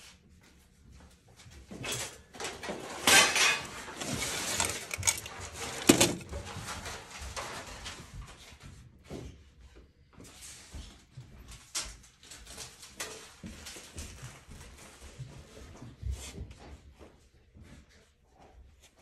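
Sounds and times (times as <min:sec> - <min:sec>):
nails rattling in plastic box: 0:02.5 - 0:06.9.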